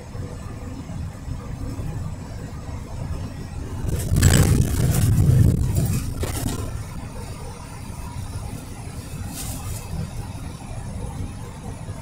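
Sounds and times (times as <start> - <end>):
engine and tyre rumble: 0.0 - 12.0.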